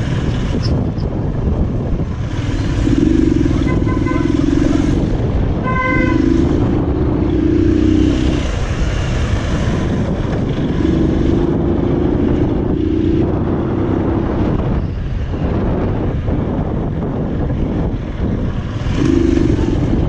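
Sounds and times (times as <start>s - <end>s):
vehicle engine droning: 0.0s - 20.0s
short horn toot: 3.6s - 4.5s, 5.6s - 6.4s.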